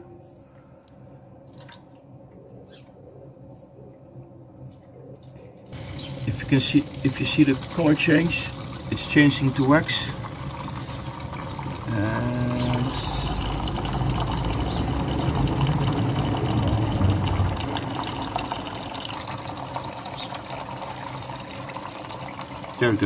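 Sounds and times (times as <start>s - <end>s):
liquid splashing and frothing: 5.8s - 22.8s
hot liquid pouring into metal bowl: 5.8s - 23.0s.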